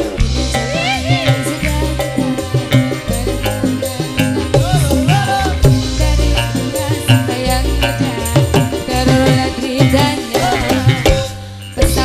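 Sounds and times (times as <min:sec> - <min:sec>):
live band music: 0:00.0 - 0:12.0
shaker rhythm: 0:00.0 - 0:12.0.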